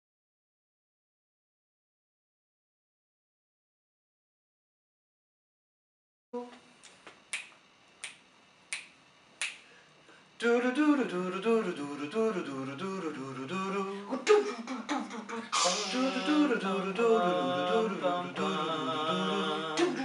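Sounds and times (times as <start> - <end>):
finger snaps: 6.8 - 9.7
a cappella vocal harmony: 10.4 - 20.0.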